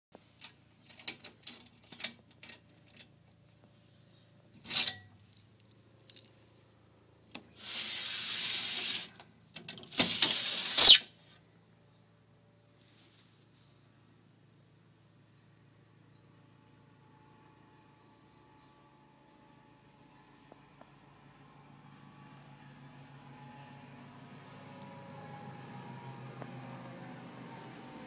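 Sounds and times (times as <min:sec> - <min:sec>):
rustling in mulch: 0:12.8 - 0:13.9.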